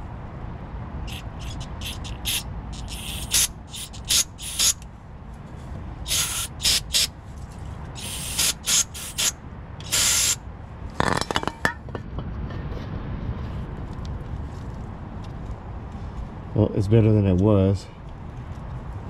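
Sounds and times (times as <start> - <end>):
aerosol spray hissing bursts: 1.8 - 4.8, 6.1 - 7.1, 8.0 - 9.3, 9.9 - 10.4.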